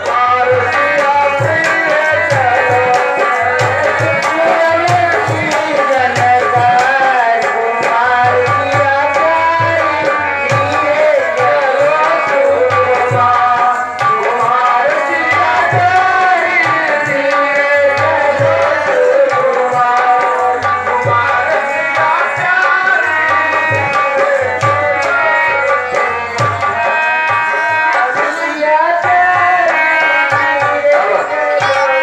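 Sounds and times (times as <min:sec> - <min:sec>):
hand drum beating: 0:00.0 - 0:14.7.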